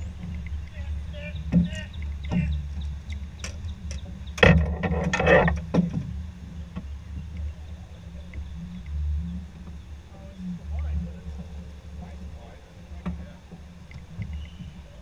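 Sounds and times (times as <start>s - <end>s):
gear knocking on aluminum boat: 0.0s - 7.6s, 10.7s - 15.0s
steady low rumble: 0.0s - 15.0s.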